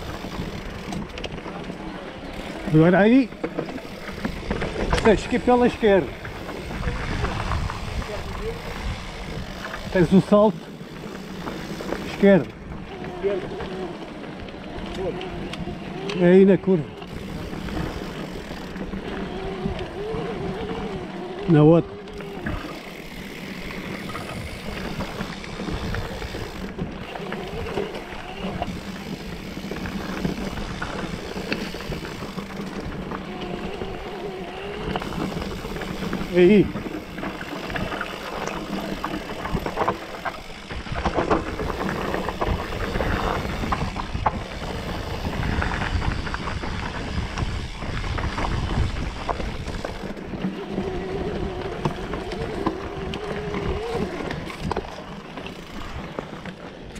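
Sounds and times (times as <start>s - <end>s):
bike knocks and rattles: 0.0s - 13.9s, 22.2s - 56.7s
tyre and trail noise: 0.0s - 56.9s.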